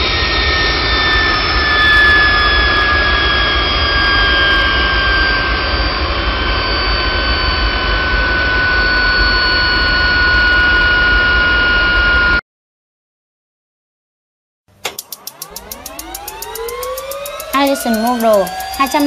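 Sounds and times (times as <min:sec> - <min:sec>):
gas turbine engine running: 0:14.7 - 0:19.0.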